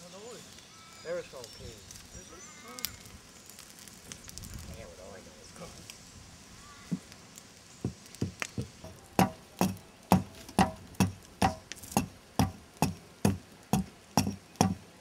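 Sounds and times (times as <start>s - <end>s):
sharp ringing knocks: 8.8s - 14.8s.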